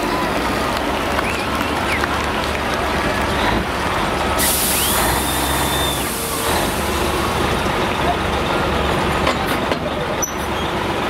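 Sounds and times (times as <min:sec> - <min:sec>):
diesel engine idling: 0:00.0 - 0:11.0
air brake hiss: 0:04.4 - 0:06.8
rising and falling whistle: 0:04.7 - 0:06.1.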